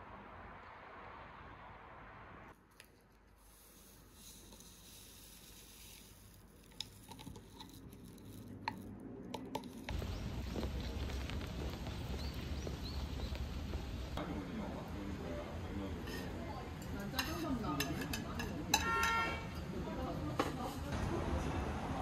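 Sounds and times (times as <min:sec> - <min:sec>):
steady rain: 0:09.9 - 0:14.2.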